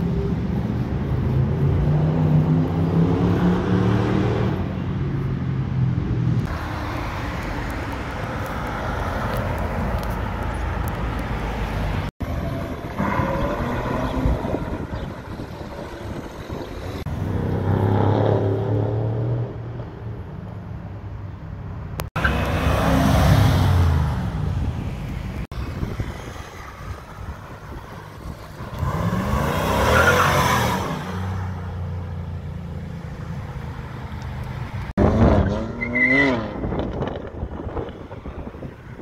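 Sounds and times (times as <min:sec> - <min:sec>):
loud cars accelerating past: 0:01.1 - 0:09.4, 0:11.4 - 0:19.9, 0:22.2 - 0:24.9, 0:33.1 - 0:39.0.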